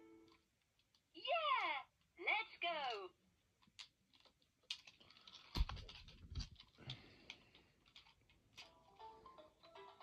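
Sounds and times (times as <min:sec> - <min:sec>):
plastic toys clattering: 0:02.8 - 0:03.0, 0:03.6 - 0:10.0.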